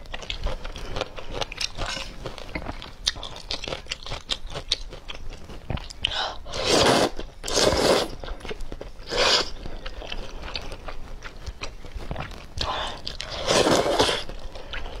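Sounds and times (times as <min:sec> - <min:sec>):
person slurping noodles: 0:06.4 - 0:08.2, 0:09.0 - 0:09.6, 0:12.7 - 0:15.0.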